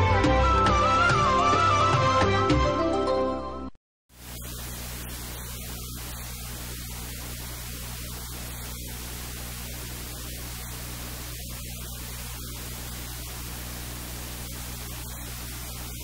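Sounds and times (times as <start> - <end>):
steady hiss: 4.1 - 16.0.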